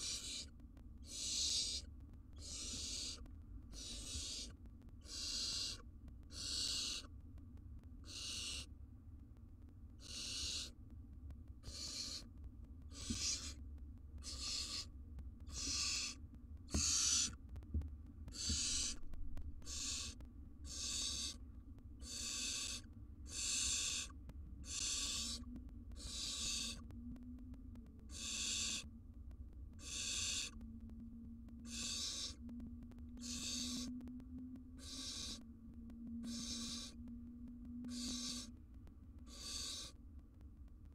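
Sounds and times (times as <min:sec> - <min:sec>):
owl chicks hissing begging calls: 0:00.0 - 0:07.1, 0:08.0 - 0:08.7, 0:10.0 - 0:10.8, 0:11.6 - 0:12.3, 0:12.9 - 0:13.6, 0:14.2 - 0:14.9, 0:15.5 - 0:17.4, 0:18.3 - 0:19.0, 0:19.6 - 0:21.4, 0:22.0 - 0:26.9, 0:28.1 - 0:28.9, 0:29.8 - 0:30.6, 0:31.6 - 0:32.4, 0:33.2 - 0:33.9, 0:34.8 - 0:35.4, 0:36.2 - 0:37.0, 0:37.8 - 0:38.6, 0:39.3 - 0:40.0.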